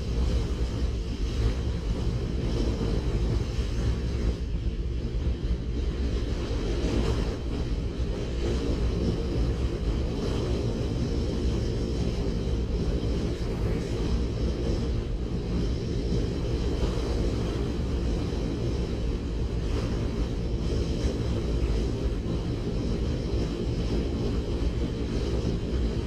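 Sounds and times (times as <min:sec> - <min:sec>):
wind buffeting microphone: 0:00.0 - 0:26.0.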